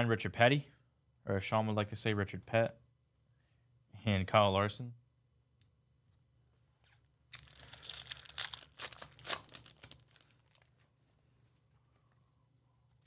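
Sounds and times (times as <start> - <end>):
foil wrapper tearing and crinkling: 7.3 - 10.8.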